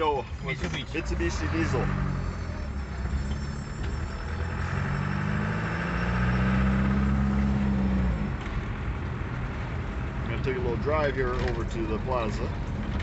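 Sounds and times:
diesel engine revving: 0.0 - 10.4.

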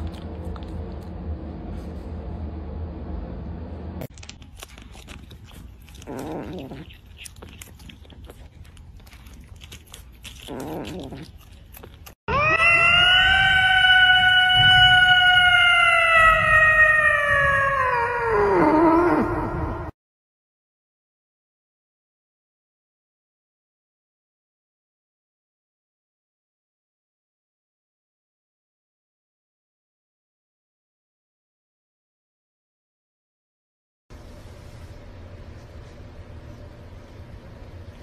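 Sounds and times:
cat crunching lettuce: 0.0 - 1.9, 4.1 - 12.2
cat yowling: 5.9 - 7.8, 10.2 - 11.6, 12.3 - 19.9.

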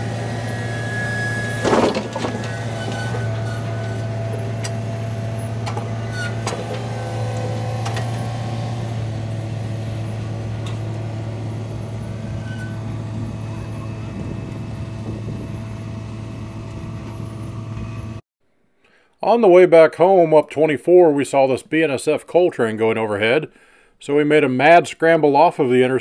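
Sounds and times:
train cars clanking: 0.0 - 15.5
train rolling with low rumble: 0.0 - 18.2.

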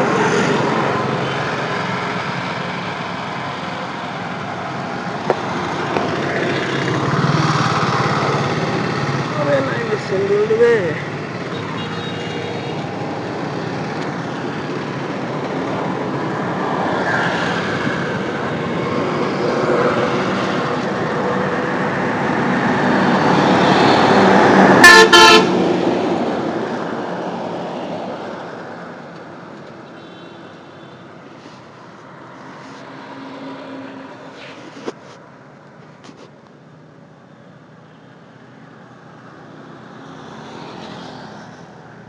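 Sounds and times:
road traffic passing: 0.0 - 42.0
vehicle horn toots: 11.6 - 12.7, 24.8 - 25.6.

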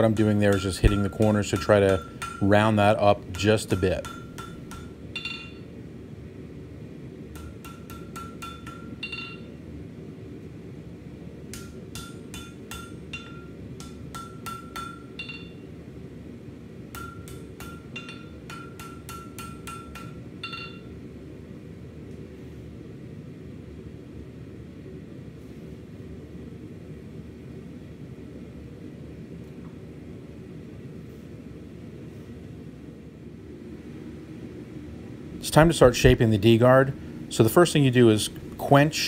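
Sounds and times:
hammer striking steel on an anvil: 0.0 - 5.7, 7.3 - 9.6, 11.5 - 15.6, 16.9 - 20.9.

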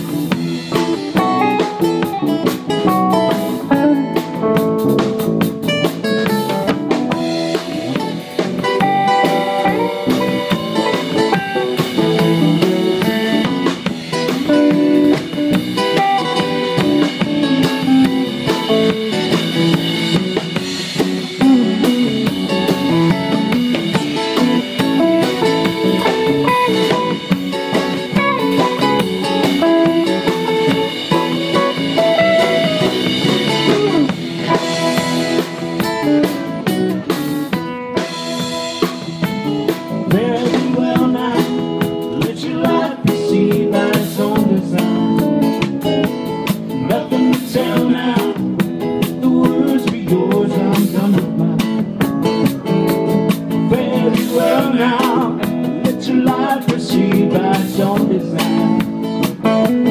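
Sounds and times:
acoustic and electric guitars: 0.0 - 59.9
drum kit: 0.0 - 59.9.

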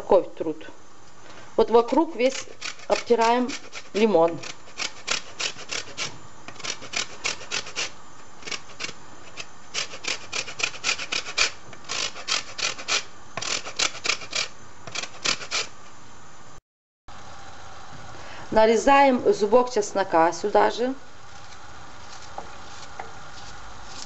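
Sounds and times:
lemon rasping on metal grater: 1.8 - 15.7.

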